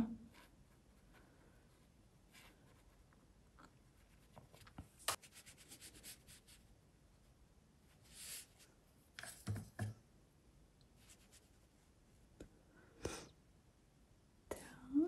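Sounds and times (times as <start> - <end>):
brush dabbing on paper: 4.0 - 6.6, 8.0 - 9.6
scratchy brush strokes: 4.0 - 6.7, 7.9 - 9.7, 11.0 - 11.8
brush tap: 9.2 - 10.0.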